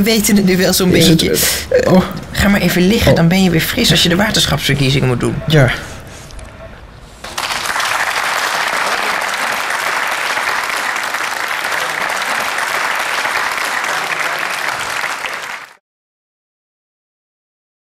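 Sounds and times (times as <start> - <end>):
audience applause: 7.2 - 15.8.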